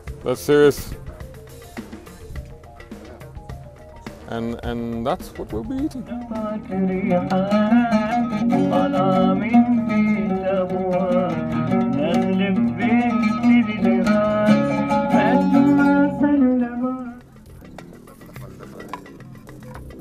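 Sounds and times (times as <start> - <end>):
oud plucked notes: 0.0 - 17.9
man singing: 6.0 - 17.2.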